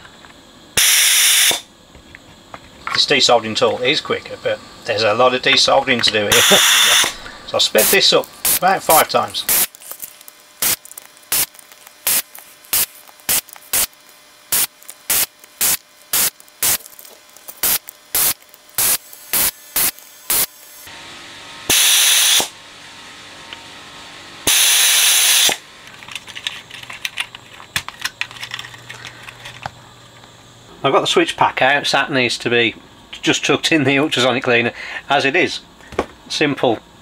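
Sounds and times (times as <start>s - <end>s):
air blasts: 0.8s - 1.6s, 6.3s - 9.8s, 10.6s - 20.9s, 21.7s - 22.6s, 24.5s - 25.6s
desoldering gun hissing puffs: 6.2s - 20.9s.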